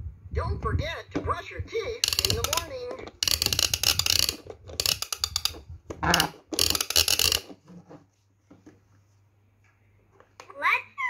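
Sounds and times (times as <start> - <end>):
plastic ratchet clicking: 2.0 - 7.6.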